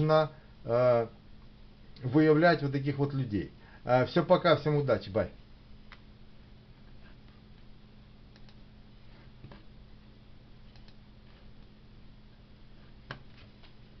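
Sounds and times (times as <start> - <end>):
steady low hum: 0.0 - 14.0
faint clicks: 10.7 - 11.0.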